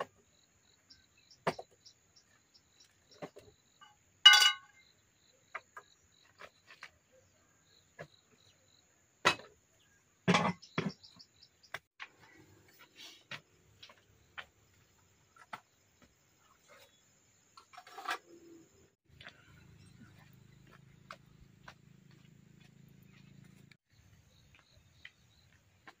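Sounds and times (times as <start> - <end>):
pan and basin thudding: 4.3 - 4.7, 10.3 - 10.9
plate clinking: 4.3 - 4.8.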